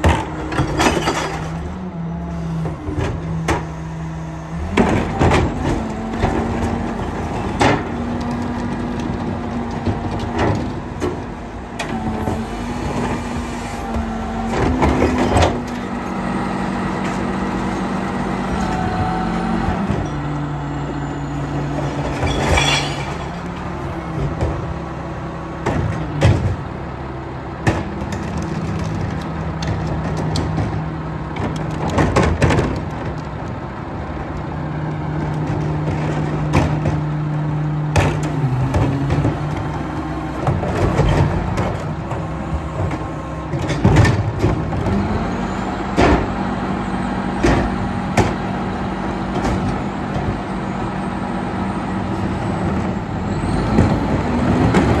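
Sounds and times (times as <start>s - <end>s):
garbage truck diesel engine running: 0.0s - 55.0s
plastic carts clanking against hopper: 40.4s - 45.2s.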